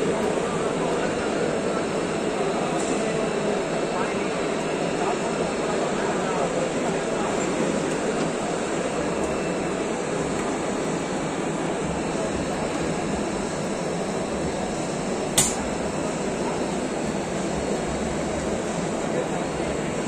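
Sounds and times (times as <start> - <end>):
sharp click: 15.4 - 15.6.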